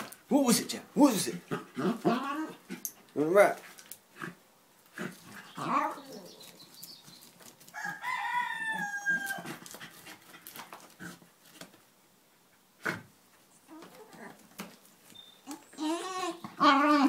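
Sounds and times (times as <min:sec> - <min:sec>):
dog whining: 0:01.8 - 0:02.6, 0:13.7 - 0:14.4, 0:15.2 - 0:17.0.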